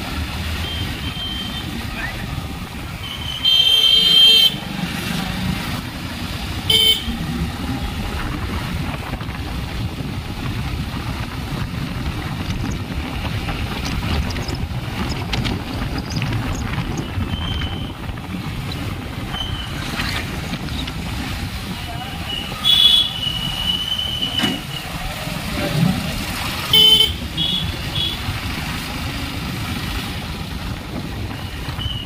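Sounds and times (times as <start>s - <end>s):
motorcycle engine and road rumble: 0.0s - 32.0s
horn toot: 6.7s - 7.2s, 26.7s - 28.2s.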